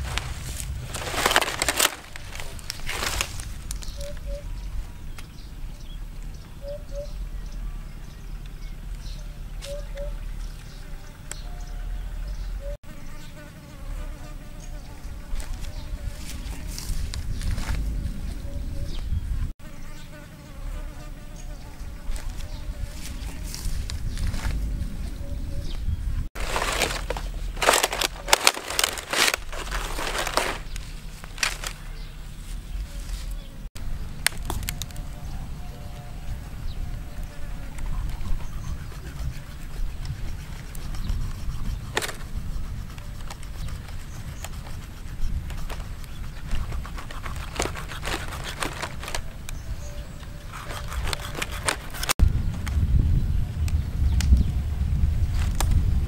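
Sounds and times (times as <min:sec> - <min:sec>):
dry palm fronds crackling: 0:00.0 - 0:05.4, 0:15.2 - 0:18.4, 0:22.1 - 0:25.1, 0:26.4 - 0:38.2, 0:44.6 - 0:49.6, 0:50.2 - 0:56.0
steady low rumble: 0:00.0 - 0:12.8, 0:13.9 - 0:19.6, 0:20.6 - 0:46.6, 0:52.1 - 0:56.0
knife cutting with clicks and crackles: 0:42.9 - 0:49.6, 0:50.3 - 0:52.2.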